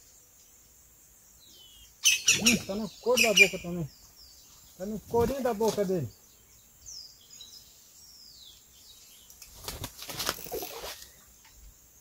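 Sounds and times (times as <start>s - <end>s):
rough rustling noise bursts: 4.9s - 6.1s, 9.4s - 11.2s.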